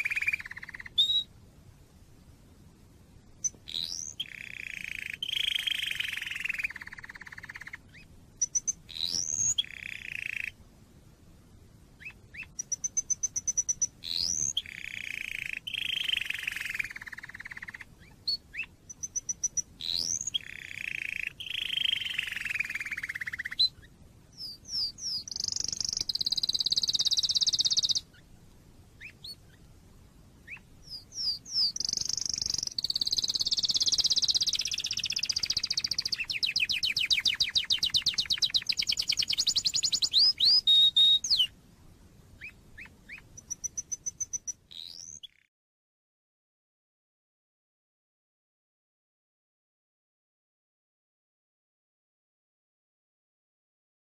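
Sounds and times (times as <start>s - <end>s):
canary singing trills: 0.0s - 1.3s, 3.4s - 10.6s, 12.0s - 28.4s, 29.0s - 29.7s, 30.4s - 41.6s, 42.4s - 45.5s.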